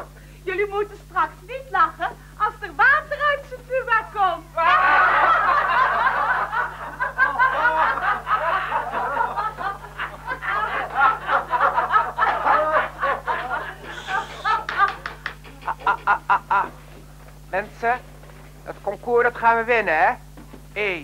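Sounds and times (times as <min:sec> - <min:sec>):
crowd laughing: 0:04.6 - 0:16.8.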